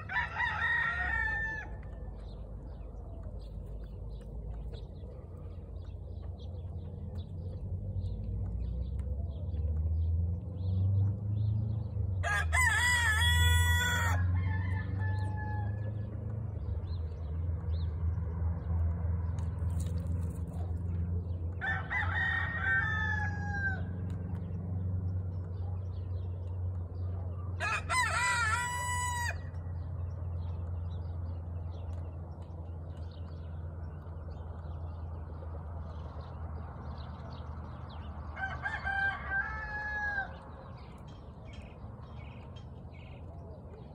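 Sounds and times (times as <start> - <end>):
roosters crowing: 0.0 - 2.4, 11.8 - 16.3, 21.5 - 24.3, 27.6 - 29.9, 37.0 - 40.9
steady low rumble: 1.0 - 12.1.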